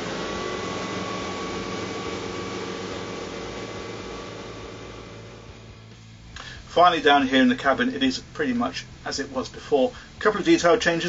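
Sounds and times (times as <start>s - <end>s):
boat diesel engines droning: 0.0s - 6.3s.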